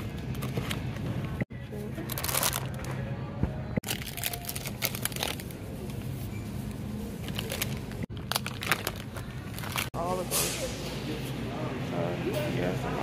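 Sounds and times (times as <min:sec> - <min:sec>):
plastic packaging crinkling: 0:03.8 - 0:05.6, 0:07.2 - 0:10.0.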